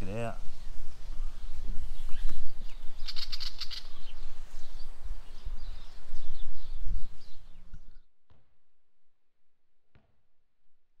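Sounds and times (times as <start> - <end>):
birds chirping: 0.0 - 8.0
wind rumble on microphone: 0.0 - 8.1.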